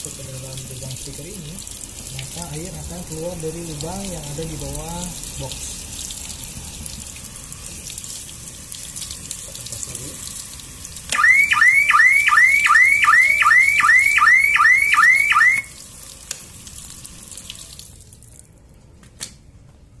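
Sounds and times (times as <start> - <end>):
tap water splashing on plastic: 1.0 - 2.5, 15.4 - 19.4
rising whooping alarm siren: 11.2 - 15.8.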